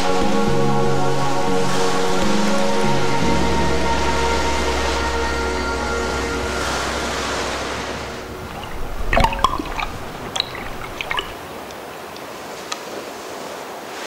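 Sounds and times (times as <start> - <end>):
surf hissing over rocks: 3.2 - 14.0
water bubbling and gurgling: 3.9 - 12.3.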